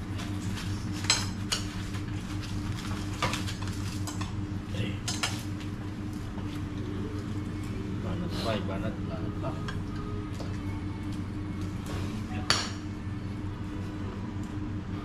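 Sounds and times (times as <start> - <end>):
steady low hum: 0.0 - 15.0
dishes and cutlery clinking: 5.0 - 5.4.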